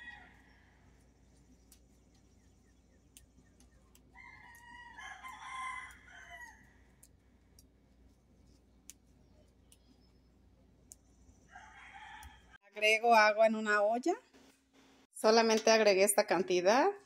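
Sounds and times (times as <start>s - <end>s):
rooster crowing faintly: 0.0s - 1.1s, 4.1s - 7.0s, 11.5s - 12.6s.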